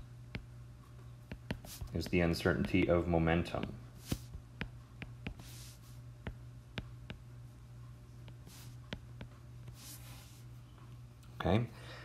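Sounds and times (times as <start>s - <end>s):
steady low hum: 0.0s - 12.0s
stylus scratching on screen: 1.3s - 2.9s, 4.0s - 7.2s, 8.3s - 10.5s.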